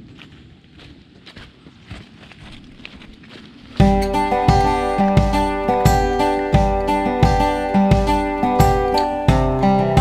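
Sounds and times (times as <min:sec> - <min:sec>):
footsteps crunching dry leaves: 0:00.0 - 0:04.0.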